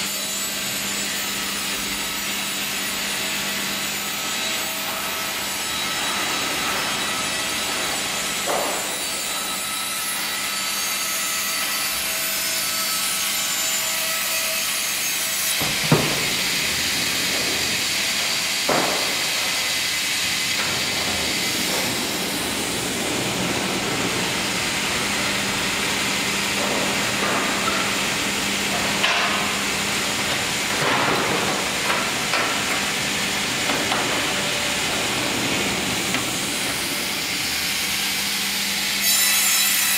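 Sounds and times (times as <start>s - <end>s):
sawmill machinery running: 0.0s - 39.9s
knocks and clanks: 5.8s - 9.4s, 14.8s - 25.6s, 26.4s - 29.6s, 30.2s - 37.3s.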